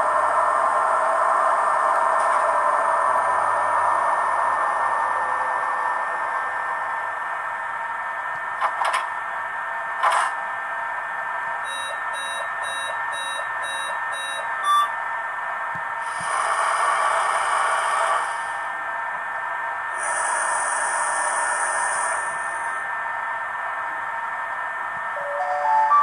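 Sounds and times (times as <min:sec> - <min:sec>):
short electronic beeps: 0:11.7 - 0:14.9.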